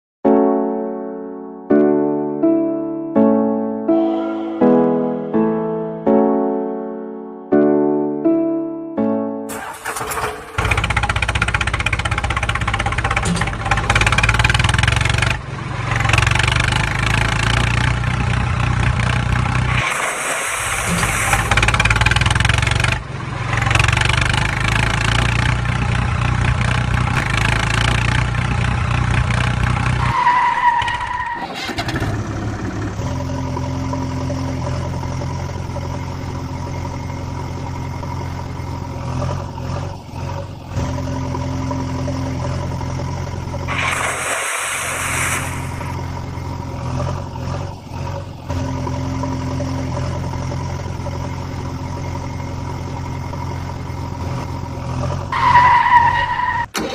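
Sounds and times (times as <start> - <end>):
engine sound effect: 3.9 - 5.8, 9.5 - 30.2, 31.3 - 55.7
rush of noise: 43.7 - 46.1.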